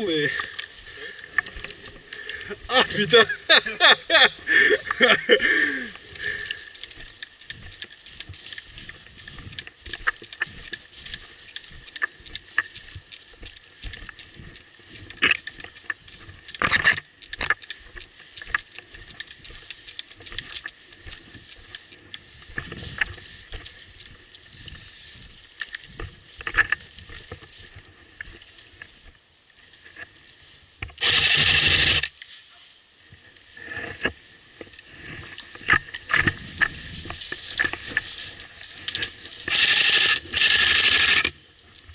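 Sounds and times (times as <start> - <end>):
twigs snapping: 4.8 - 28.7, 35.3 - 41.9
footsteps on dry leaves: 6.0 - 29.2, 34.3 - 41.9
loud burst of noise: 31.0 - 32.1.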